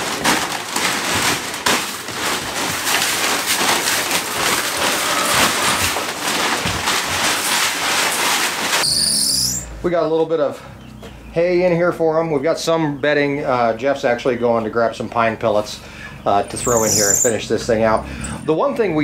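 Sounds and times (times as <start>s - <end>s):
hay rustling and crackling: 0.0s - 9.6s, 16.7s - 17.9s.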